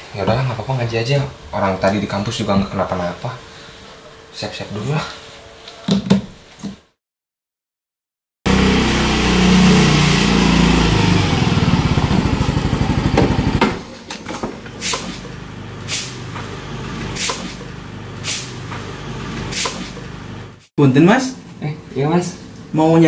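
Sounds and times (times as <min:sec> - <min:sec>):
motor scooter engine running: 0:08.5 - 0:13.6, 0:15.2 - 0:18.1.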